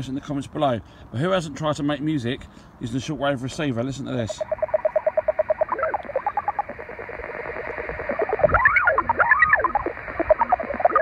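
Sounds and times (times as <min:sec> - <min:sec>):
pulsed knocking radio signal: 0:04.3 - 0:11.0.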